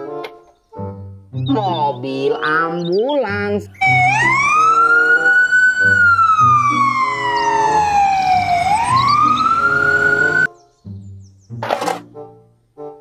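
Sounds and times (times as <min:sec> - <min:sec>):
ambulance siren wailing: 0:03.8 - 0:10.5.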